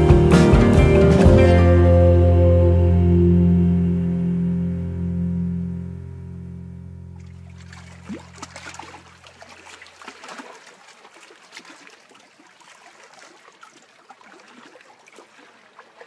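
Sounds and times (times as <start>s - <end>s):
sustained music chord: 0.0s - 7.9s
small waves lapping on boulders: 7.2s - 16.0s.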